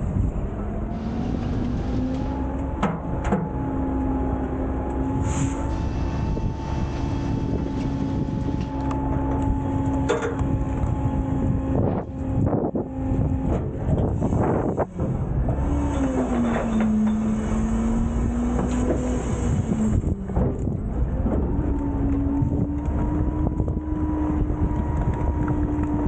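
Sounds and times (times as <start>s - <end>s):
garbage truck hydraulics humming: 0.7s - 24.7s
trash knocking and crunching: 20.0s - 21.6s.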